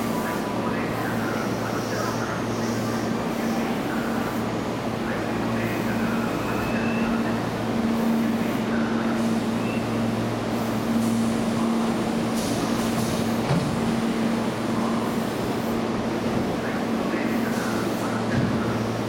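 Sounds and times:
faint voices: 0.0s - 10.2s, 14.5s - 19.0s
train equipment low hum: 0.0s - 19.0s.

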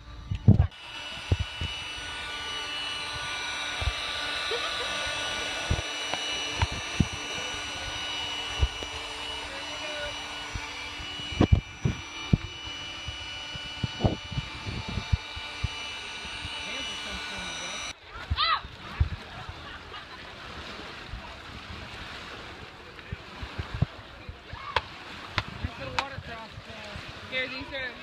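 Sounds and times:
electric air pump whining: 0.0s - 18.0s.

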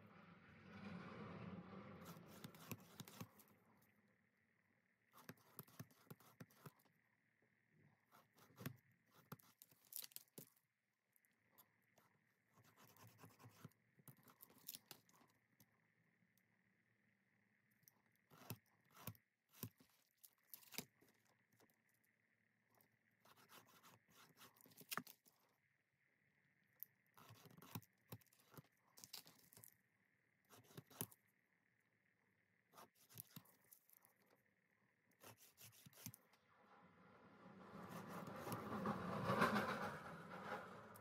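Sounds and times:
scraping and cutting leather: 2.0s - 3.5s, 5.1s - 6.9s, 8.0s - 10.5s, 12.5s - 15.3s, 18.1s - 21.4s, 23.2s - 25.4s, 27.1s - 29.8s, 30.4s - 31.2s, 32.7s - 34.4s, 35.1s - 36.4s, 37.8s - 39.7s.

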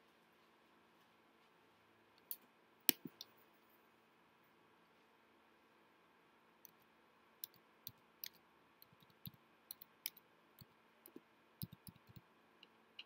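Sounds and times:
small sharp clicks and taps: 2.2s - 3.4s, 6.6s - 13.0s.

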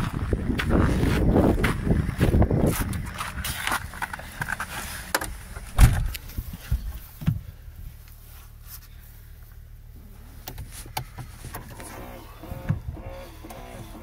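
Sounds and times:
car door shutting: 5.1s - 6.4s, 10.4s - 14.0s
thumps of person getting into car: 5.1s - 7.5s.

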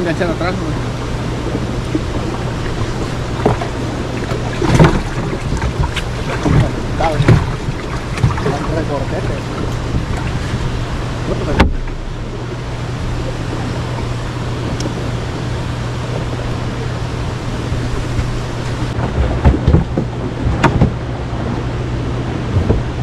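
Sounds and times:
boat motor humming: 0.0s - 23.0s
water noise: 0.0s - 23.0s
wind: 0.0s - 23.0s
sharp knocks: 19.0s - 21.0s.

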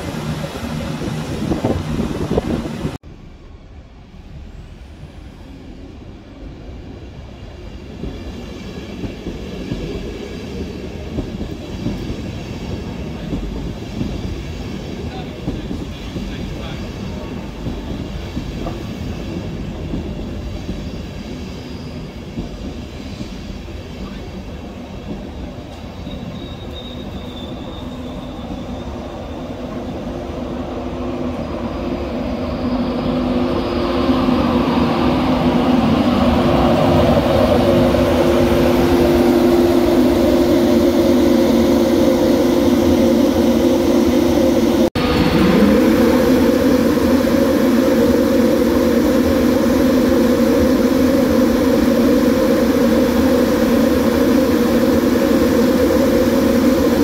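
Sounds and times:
electric train whine: 0.0s - 57.0s
train coaches rumbling by: 0.0s - 57.0s.

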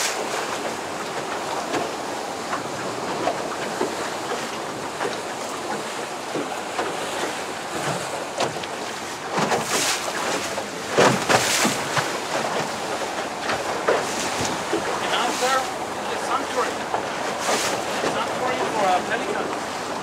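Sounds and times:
water splashing against boat hull: 0.0s - 20.0s.

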